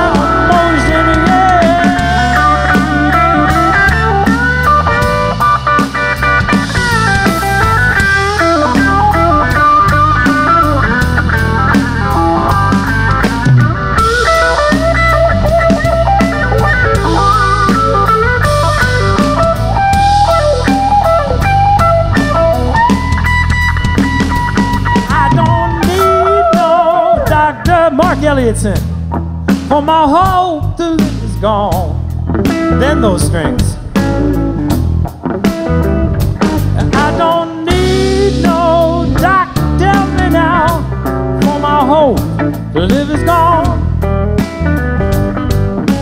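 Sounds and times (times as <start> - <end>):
electric guitar solo: 0.0 - 27.6
drum kit: 0.0 - 46.0
electric bass: 0.0 - 46.0.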